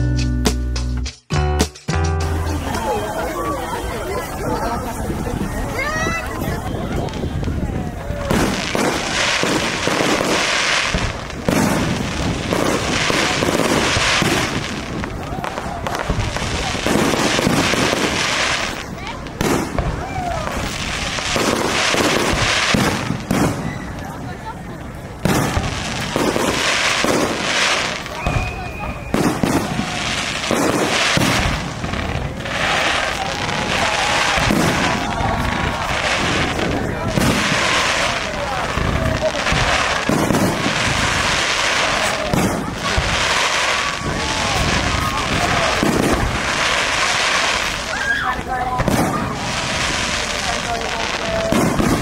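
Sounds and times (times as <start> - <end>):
fireworks bursting and crackling: 2.2 - 52.0
loud firework bang: 8.2 - 18.2, 21.3 - 23.9, 33.7 - 38.1, 41.8 - 43.2, 48.8 - 49.4.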